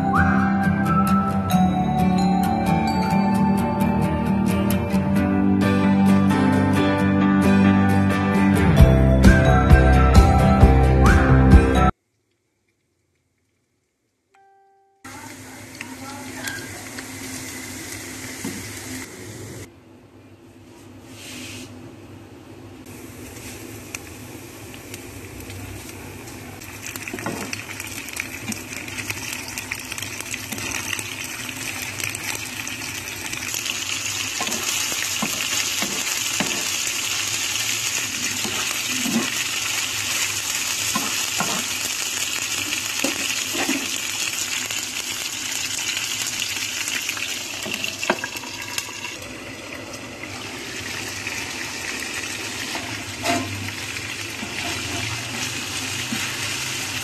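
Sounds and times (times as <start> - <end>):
chicken sizzling in hot oil: 15.1 - 19.7, 22.9 - 57.0.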